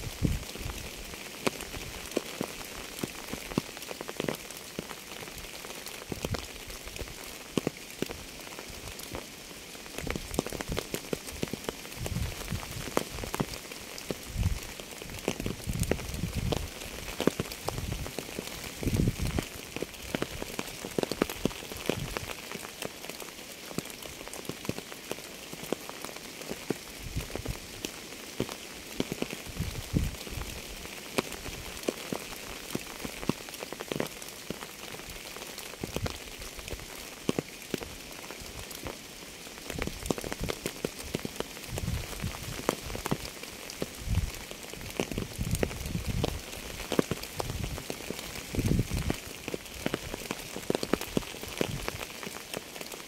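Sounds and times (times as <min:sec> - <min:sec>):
steady rain hissing: 0:00.0 - 0:53.0.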